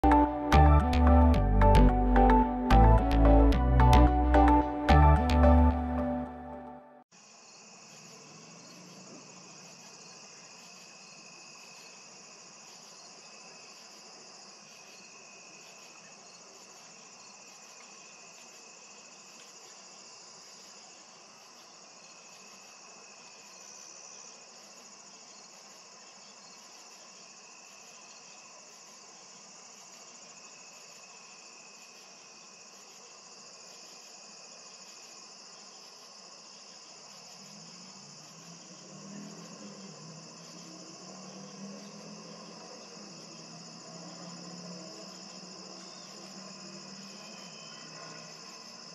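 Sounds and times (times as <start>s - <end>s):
very high pulse: 0.0s - 7.0s
insects trilling: 7.2s - 48.9s.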